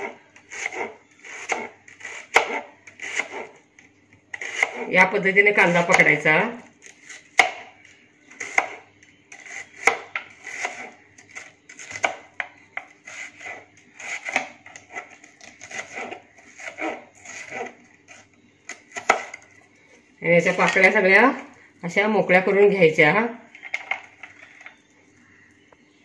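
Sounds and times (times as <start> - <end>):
knife slicing onion: 0.0 - 3.6, 4.3 - 5.0, 6.8 - 19.5.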